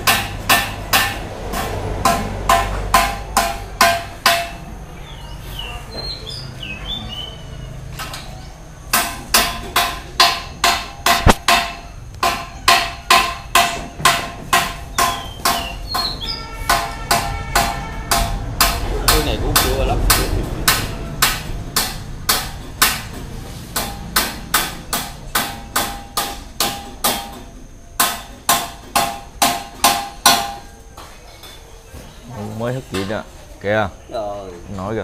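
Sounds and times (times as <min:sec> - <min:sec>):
hammer blows ringing: 0:00.0 - 0:04.8, 0:08.9 - 0:30.9
birds chirping: 0:04.6 - 0:08.9, 0:14.8 - 0:16.8.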